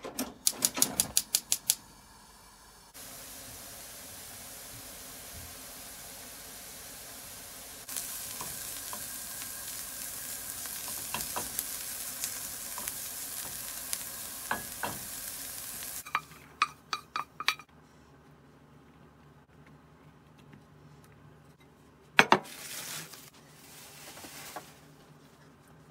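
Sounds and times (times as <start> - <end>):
onions sizzling in frying pan: 2.8 - 16.4.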